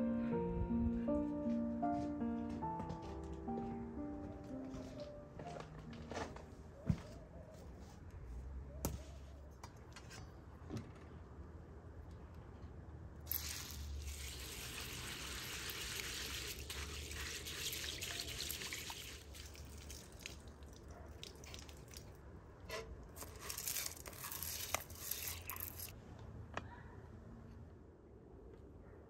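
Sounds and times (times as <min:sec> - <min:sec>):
water trickling onto pulses: 0:13.2 - 0:22.3.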